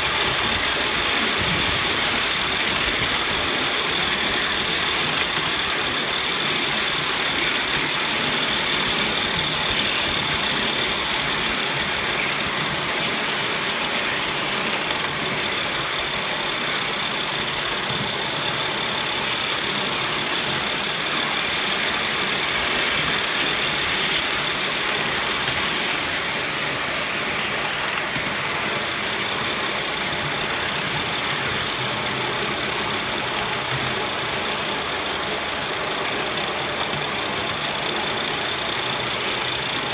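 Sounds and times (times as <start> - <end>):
high steam hiss: 0.0 - 39.9
steam exhaust blowing: 0.0 - 39.9
wheels rushing on rail: 0.0 - 39.9.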